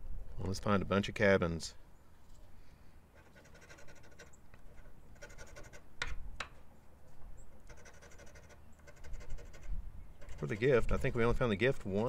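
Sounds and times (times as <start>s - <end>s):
scraping scratch-off ticket: 3.2s - 5.9s, 7.5s - 12.0s.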